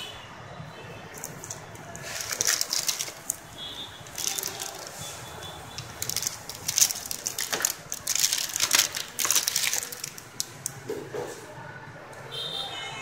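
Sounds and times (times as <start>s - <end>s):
plastic wrapping crinkling: 1.1s - 11.0s.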